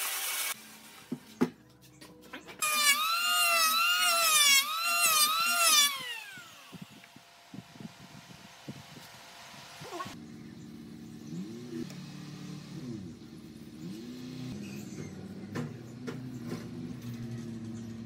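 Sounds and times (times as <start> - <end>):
engine revving: 10.7 - 18.0.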